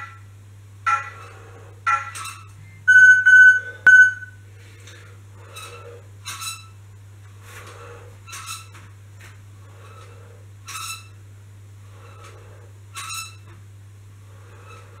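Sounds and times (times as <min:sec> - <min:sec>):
exerciser squeaking: 0:00.9 - 0:04.4, 0:05.4 - 0:06.8, 0:07.6 - 0:08.9, 0:09.7 - 0:11.2, 0:11.9 - 0:13.6, 0:14.5 - 0:15.0.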